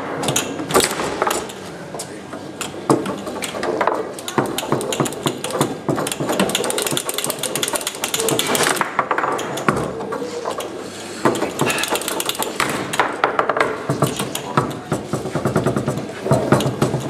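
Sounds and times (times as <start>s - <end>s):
foosball rods clacking: 0.0s - 17.0s
foosball ball knocking: 11.2s - 17.0s.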